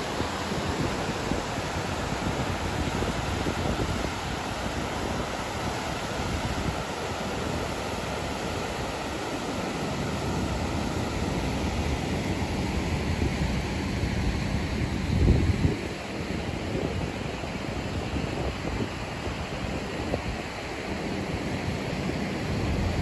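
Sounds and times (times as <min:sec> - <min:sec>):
wind rumble on microphone: 0:00.0 - 0:09.0, 0:10.1 - 0:23.0
water rushing from floodgates: 0:00.0 - 0:15.0.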